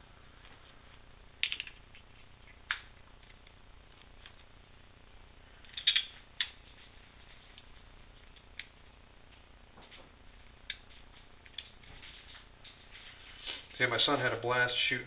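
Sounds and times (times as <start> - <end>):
sharp metal clicks: 5.7 - 6.6.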